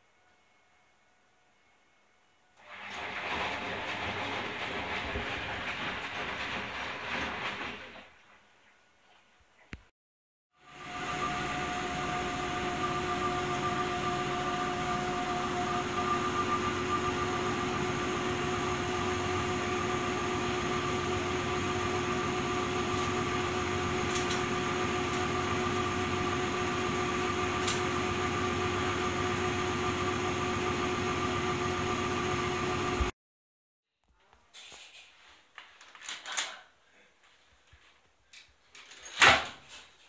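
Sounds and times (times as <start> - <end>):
washing machine drum spinning: 2.6 - 8.2, 10.8 - 33.1
motor whine: 10.6 - 33.1.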